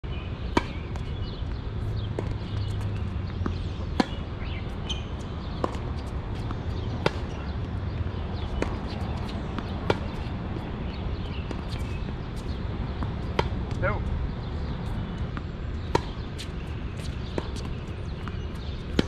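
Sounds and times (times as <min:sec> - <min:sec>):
tennis ball hit by rackets: 0:02.2 - 0:04.2, 0:05.5 - 0:07.4, 0:08.4 - 0:13.8, 0:15.3 - 0:19.0.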